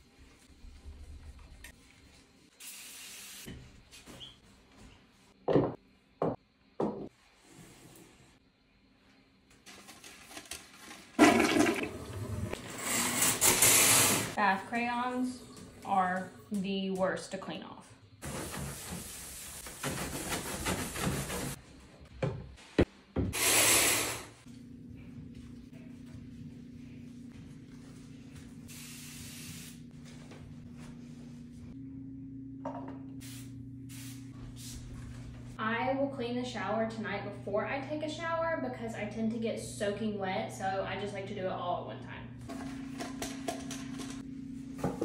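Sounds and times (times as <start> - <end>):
hiss: 2.6 - 3.5, 23.3 - 24.4, 28.7 - 29.8
scrubbing bathtub surface: 18.2 - 21.6
spray bottle spritz: 28.7 - 29.8, 33.2 - 34.7.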